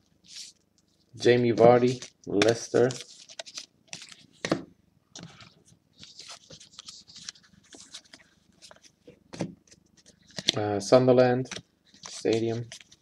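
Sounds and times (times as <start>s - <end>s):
trading cards sliding and scraping: 5.2s - 10.6s.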